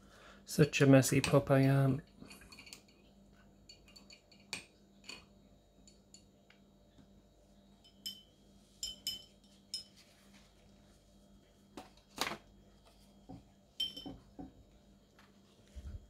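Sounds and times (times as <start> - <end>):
clinks on glass jar: 7.8 - 10.0, 13.8 - 14.2.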